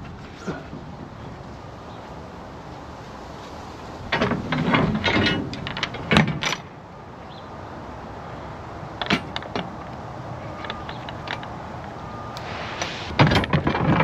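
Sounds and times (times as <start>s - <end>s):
steady background noise: 0.0s - 14.0s
mechanical clanking and ratcheting: 4.1s - 6.7s, 13.1s - 14.0s.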